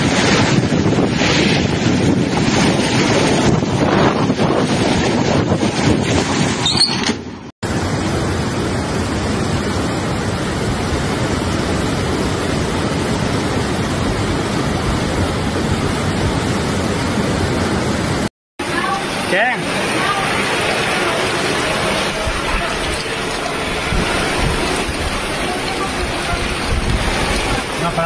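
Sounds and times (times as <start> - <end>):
torrential rain: 0.0 - 6.3, 7.6 - 28.0
wind buffeting microphone: 0.0 - 6.8, 19.9 - 28.0
floodwater rushing: 0.0 - 28.0.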